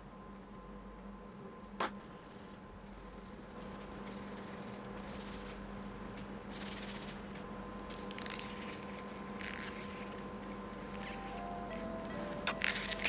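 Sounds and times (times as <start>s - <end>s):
faint steady hum: 0.0s - 13.0s
card scraping in leather holder: 7.9s - 10.2s.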